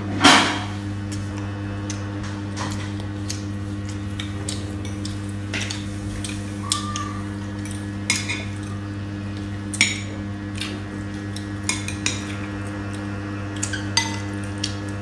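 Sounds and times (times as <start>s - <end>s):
steady low hum: 0.0s - 15.0s
cutlery clinking on ceramic bowls: 11.6s - 12.4s, 13.6s - 14.4s.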